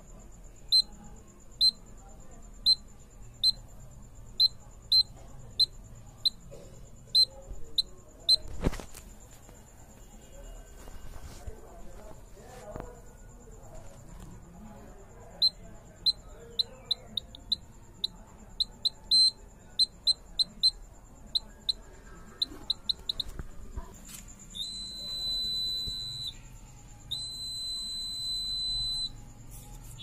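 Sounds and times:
piezo buzzer beeping: 4.4 - 6.4, 15.4 - 20.8, 22.4 - 23.3, 24.6 - 26.4, 27.1 - 29.2.

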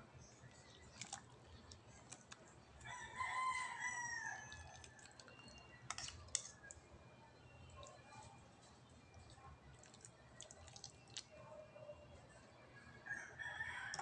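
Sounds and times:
rooster crowing: 2.9 - 4.6, 13.0 - 14.0.

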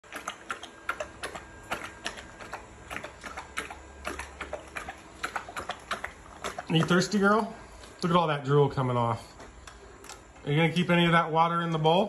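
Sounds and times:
dog lapping water from metal bowl: 0.0 - 7.5.

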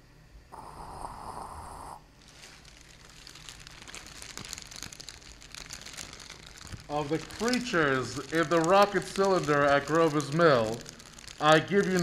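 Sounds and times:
burst of hiss: 0.5 - 2.1
continuous crackling: 1.6 - 12.0.

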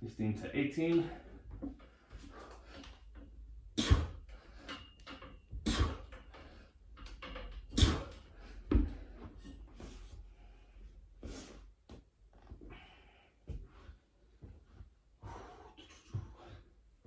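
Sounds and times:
pull-up bar frame thump: 7.0 - 9.6.

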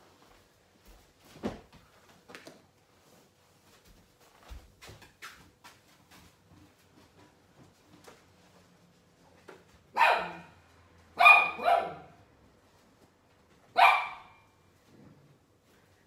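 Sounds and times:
dog barking: 9.9 - 10.6, 11.2 - 12.2, 13.7 - 14.5.

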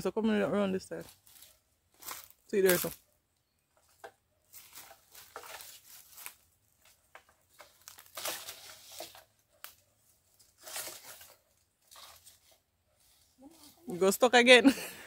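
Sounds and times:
pole scraping through leaves: 4.5 - 6.4, 7.5 - 14.2.

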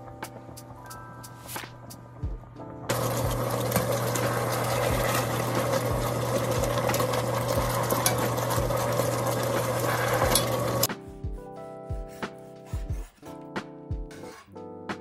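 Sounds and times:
sauce bubbling and sizzling: 2.9 - 10.9.

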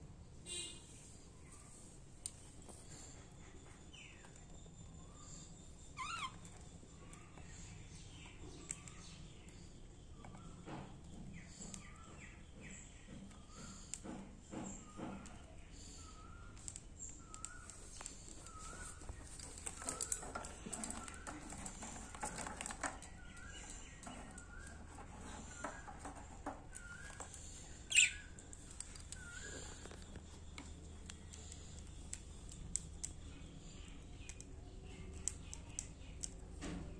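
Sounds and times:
sharp loud bird squeak: 6.0 - 6.4
budgerigars chirping: 27.9 - 28.3.

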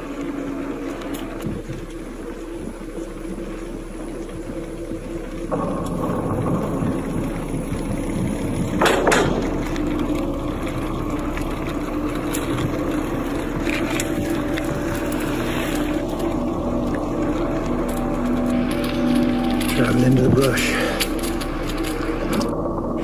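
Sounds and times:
bike tyres rolling on asphalt: 0.0 - 23.0
bike knocking over bump: 5.5 - 10.4.

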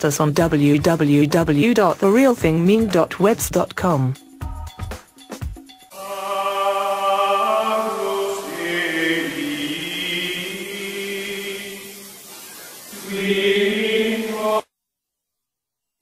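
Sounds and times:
choir holding sustained chords: 5.9 - 12.2, 12.9 - 14.6.

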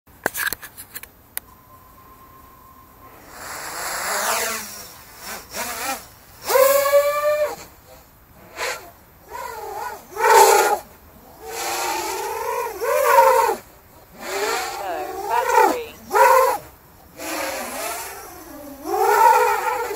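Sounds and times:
steady beep: 1.4 - 4.1
drone motors whining: 1.5 - 7.8, 8.4 - 19.9.

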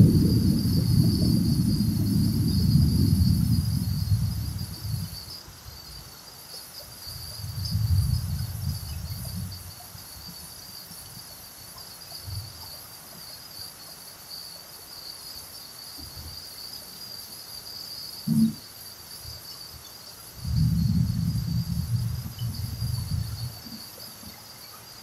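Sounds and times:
heavy rain pouring: 0.0 - 5.2, 7.1 - 9.7, 20.4 - 23.8
low thunder rumble: 0.0 - 5.3, 7.2 - 9.8, 18.3 - 18.6, 20.4 - 23.8.

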